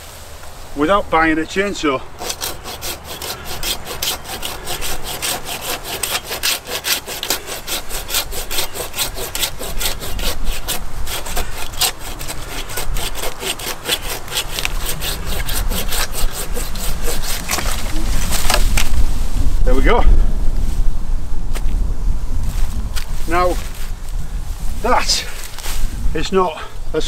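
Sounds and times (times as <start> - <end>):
hand saw cutting through branch: 1.7 - 18.9.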